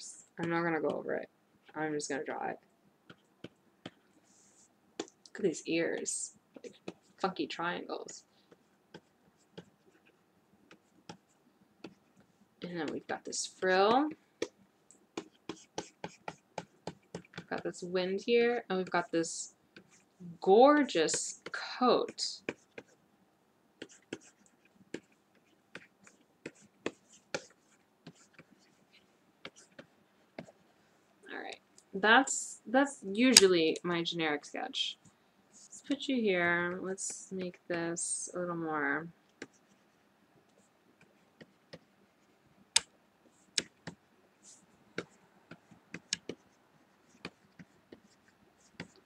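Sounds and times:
stylus tapping on graphics tablet: 3.0s - 4.0s, 10.6s - 17.7s, 23.8s - 28.8s, 29.4s - 30.6s, 42.7s - 44.1s, 45.0s - 49.0s
stylus tapping on tablet: 12.8s - 17.6s, 42.7s - 44.0s, 45.0s - 46.4s.

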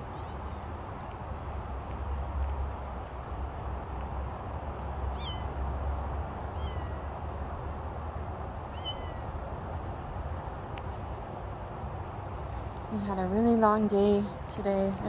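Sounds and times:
kitten meowing: 5.1s - 5.5s, 6.5s - 7.0s, 8.8s - 9.3s.

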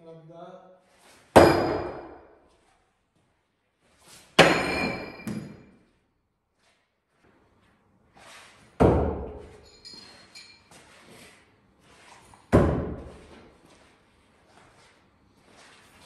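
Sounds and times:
knives thudding into wooden target: 1.4s - 2.3s, 4.4s - 5.7s.

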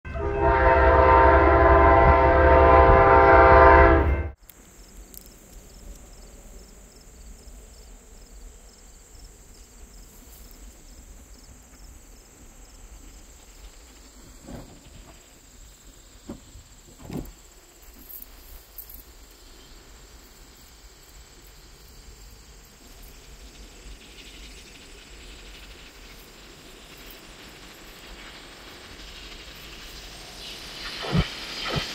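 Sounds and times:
train horn: 0.0s - 4.4s
steady high hiss: 4.3s - 31.9s.

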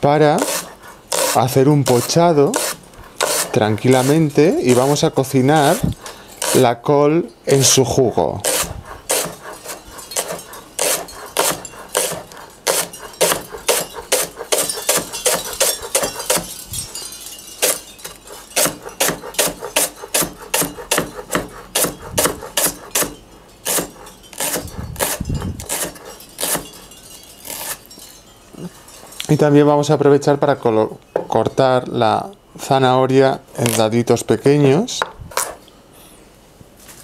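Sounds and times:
knife chopping on cutting board: 8.4s - 16.5s, 18.6s - 26.6s.

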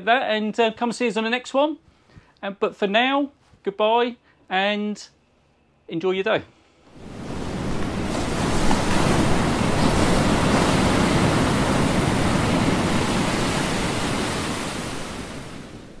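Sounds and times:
steady rushing noise: 6.8s - 16.0s.

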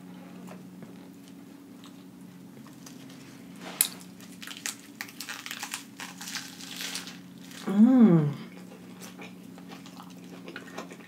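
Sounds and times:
low steady hum: 0.0s - 11.0s
crunchy bite into lettuce burger: 2.6s - 7.7s
quick crunching chews: 2.6s - 7.7s, 8.5s - 11.0s
lettuce leaves handling: 2.6s - 7.8s.

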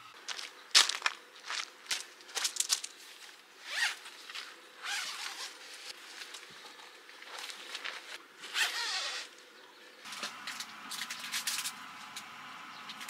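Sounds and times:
tent zipper rasping: 3.6s - 4.1s, 4.8s - 6.0s, 8.4s - 9.3s.

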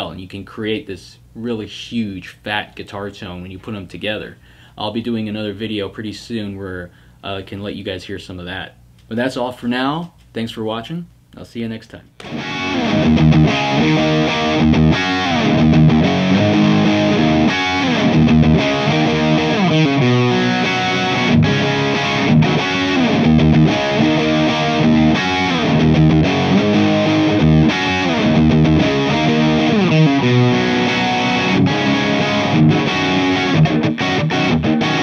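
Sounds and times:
distorted electric guitar riff: 12.2s - 35.0s.

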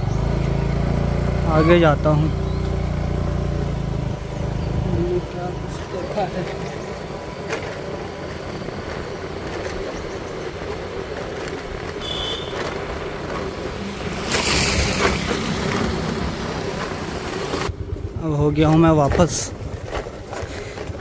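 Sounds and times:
motorcycle engine running: 0.0s - 21.0s
motorcycle passing by: 0.0s - 21.0s
wind rushing over microphone: 13.2s - 21.0s.

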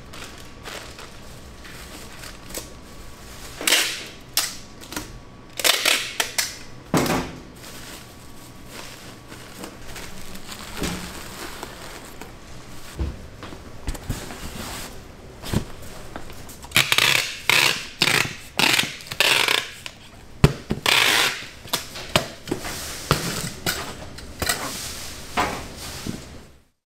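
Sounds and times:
scraping and rustling bursts: 7.6s - 13.0s.

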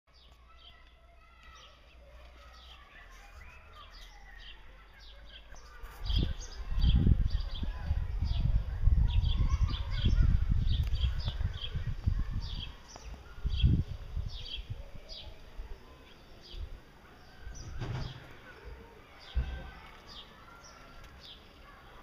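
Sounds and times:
small birds chirping: 0.1s - 22.0s
low rumble on microphone: 5.9s - 14.8s.

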